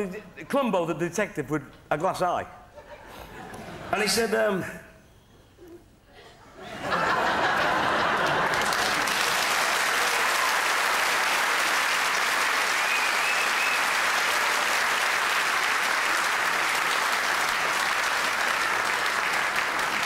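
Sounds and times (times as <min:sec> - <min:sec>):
audience applauding: 0:06.9 - 0:20.0.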